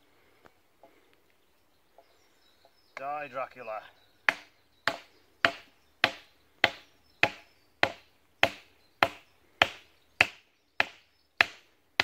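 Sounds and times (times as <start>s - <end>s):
hammer striking wooden stake: 4.3s - 12.0s.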